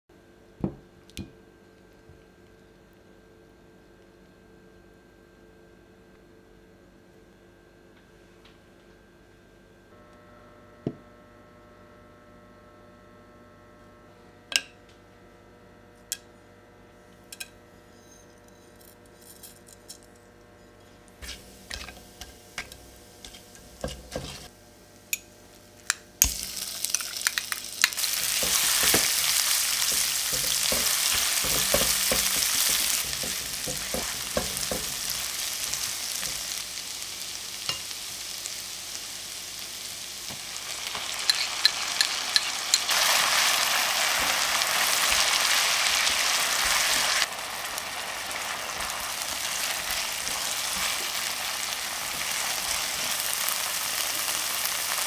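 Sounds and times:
stirring and scraping in pan: 20.9 - 24.5, 27.9 - 36.6, 40.9 - 54.7
onion sizzling in hot oil: 21.2 - 24.5, 25.5 - 55.0
spatula tapping spices in pan: 25.9 - 36.5.

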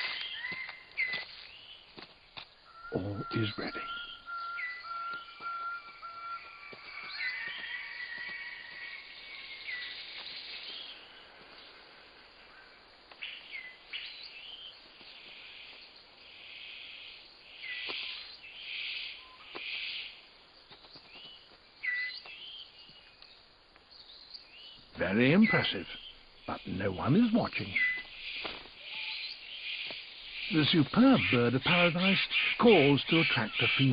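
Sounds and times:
bird chirps dropping in pitch: 2.7 - 7.7, 27.6 - 28.1.

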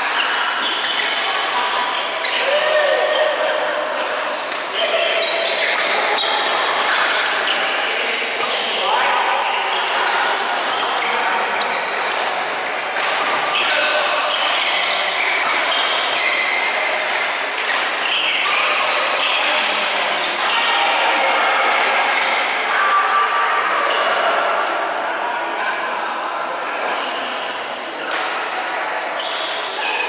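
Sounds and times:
shoes squeaking on court: 0.2 - 2.4, 13.5 - 16.9
racket hitting shuttlecock: 11.9 - 20.6.

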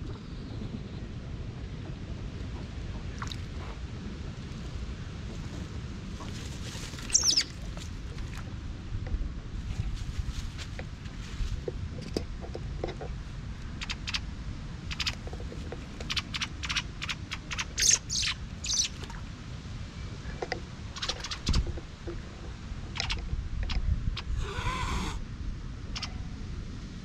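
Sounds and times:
wind on microphone: 0.0 - 27.0
rustling in dry grass: 3.6 - 8.6, 9.5 - 12.0.

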